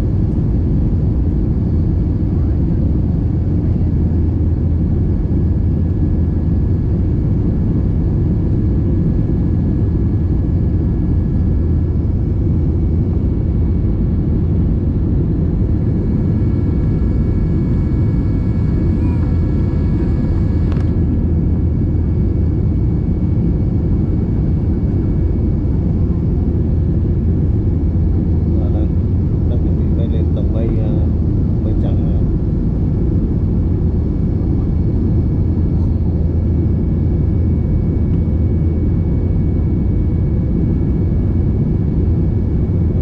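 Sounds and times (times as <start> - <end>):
jet engine cabin rumble: 0.0 - 43.0
faint whining tones: 8.0 - 31.0.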